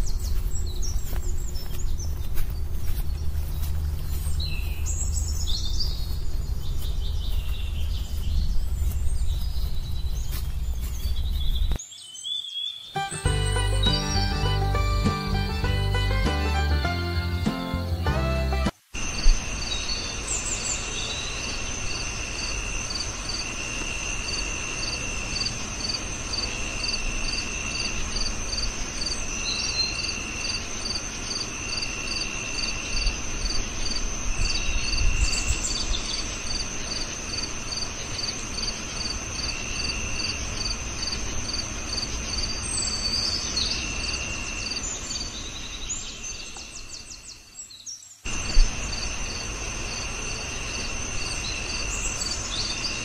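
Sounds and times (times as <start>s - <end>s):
crickets chirping: 0.0s - 11.9s, 18.8s - 53.0s.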